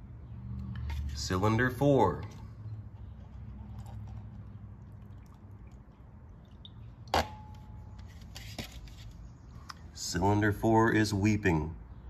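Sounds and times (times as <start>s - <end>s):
low shop hum: 0.0s - 12.0s
water trickling and dripping: 2.2s - 8.0s.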